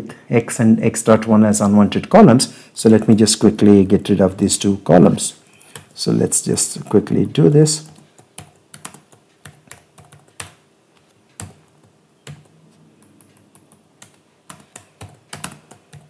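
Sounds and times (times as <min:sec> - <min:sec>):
computer keyboard typing: 0:05.6 - 0:10.6, 0:11.3 - 0:16.0.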